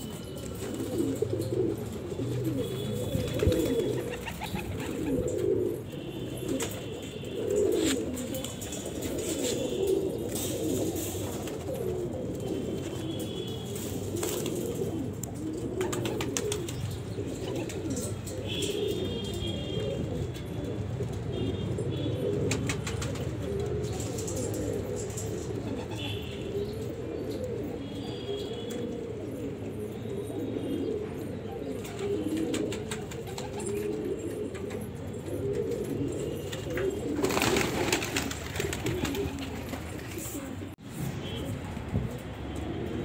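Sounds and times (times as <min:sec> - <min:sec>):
pigeons cooing: 0:00.0 - 0:43.0.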